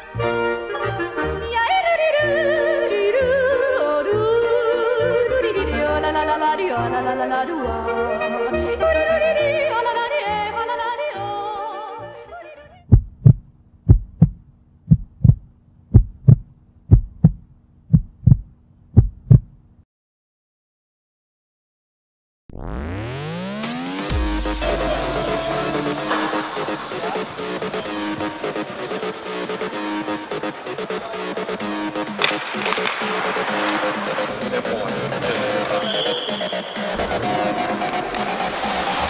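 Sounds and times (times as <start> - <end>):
yodeling song: 1.4 - 12.8, 24.4 - 27.3
heartbeat double thumps: 12.9 - 19.6.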